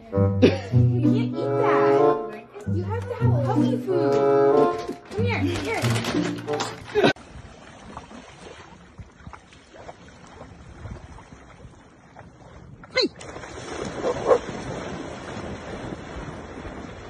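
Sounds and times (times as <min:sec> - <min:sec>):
water washing: 0:02.9 - 0:17.0
dogs splashing through water: 0:04.7 - 0:17.0
dog barking: 0:14.0 - 0:14.4.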